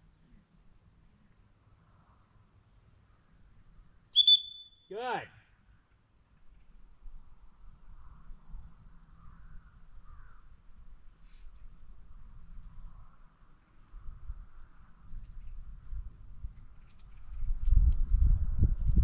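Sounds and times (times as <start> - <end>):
faint high-pitched bird chirps: 3.9 - 8.2
wind rumbling on microphone: 6.8 - 19.0.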